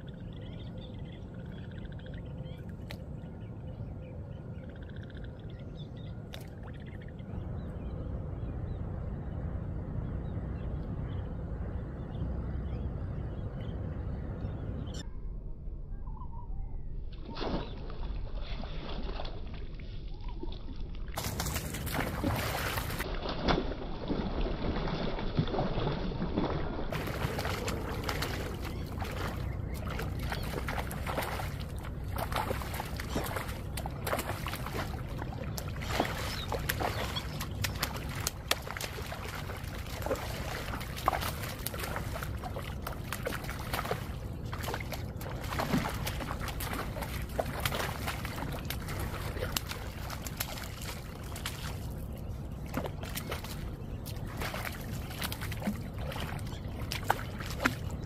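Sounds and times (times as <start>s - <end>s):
low rumble: 0.0s - 58.0s
fish thrashing and splashing water: 17.2s - 58.0s.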